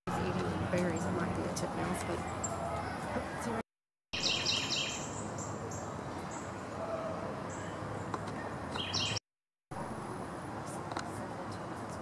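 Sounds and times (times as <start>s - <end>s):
songbirds calling: 4.2s - 9.2s.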